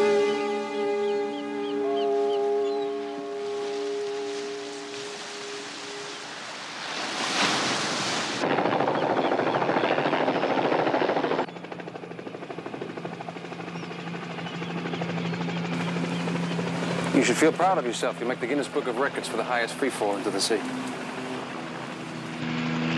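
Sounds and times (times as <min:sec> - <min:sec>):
helicopter rotor chopping: 0:08.4 - 0:22.9
low engine hum: 0:13.6 - 0:22.9.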